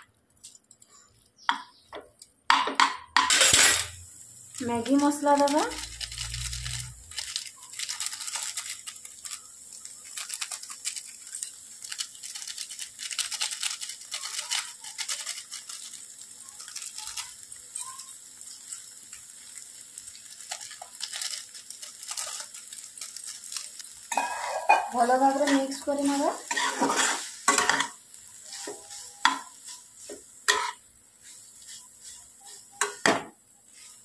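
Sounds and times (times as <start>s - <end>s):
foil sachet crinkling: 4.4s - 30.5s.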